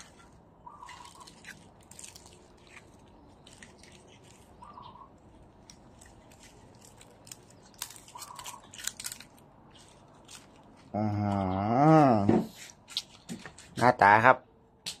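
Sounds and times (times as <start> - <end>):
dry leaves crackling and crinkling: 0.0 - 11.5.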